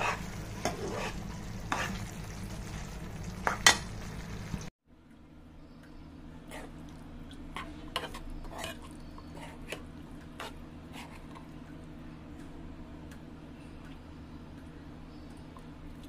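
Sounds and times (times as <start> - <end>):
spatula scraping a pan: 0.0 - 2.2, 7.6 - 11.4.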